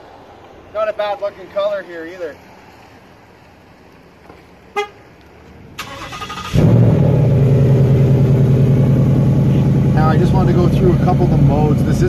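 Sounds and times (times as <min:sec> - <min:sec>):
car engine idling: 0:05.0 - 0:12.0
engine starter cranking: 0:05.8 - 0:06.8.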